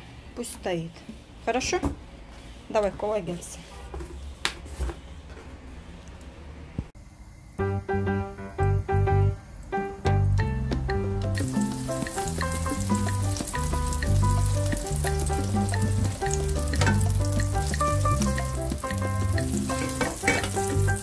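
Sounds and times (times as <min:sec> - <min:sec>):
background music with bass line: 0:10.0 - 0:21.0
butter sizzling in a frying pan: 0:11.4 - 0:21.0.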